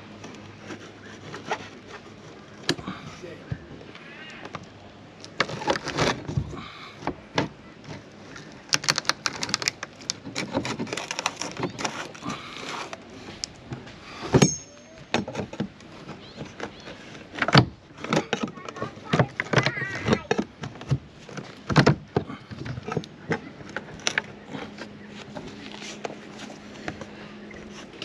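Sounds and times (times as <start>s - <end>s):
metal spatula scraping plastic: 8.8s - 13.0s.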